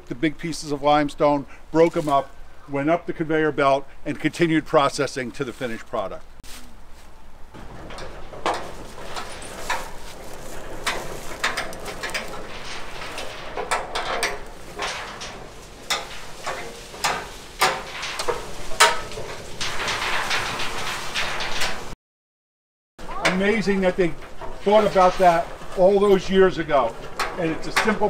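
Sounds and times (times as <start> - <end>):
metal clanks and rattles: 7.4 - 22.0, 23.1 - 28.0.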